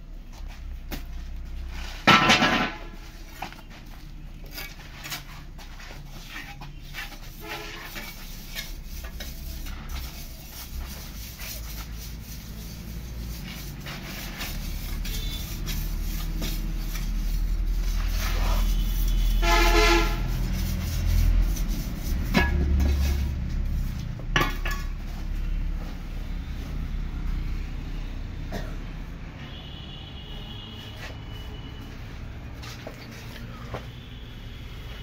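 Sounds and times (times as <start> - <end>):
low rumble of passing traffic: 0.0 - 35.0
vehicle horn tooting: 7.3 - 8.0, 15.0 - 15.7, 18.3 - 20.5, 29.4 - 32.0.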